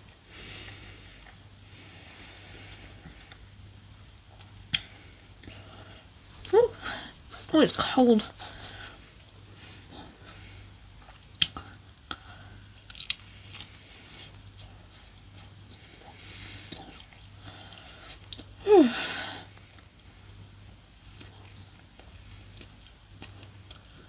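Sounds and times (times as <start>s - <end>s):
chewing and biting: 11.0s - 11.8s, 12.6s - 18.6s, 21.0s - 24.0s
wet mouth sounds: 11.1s - 11.8s.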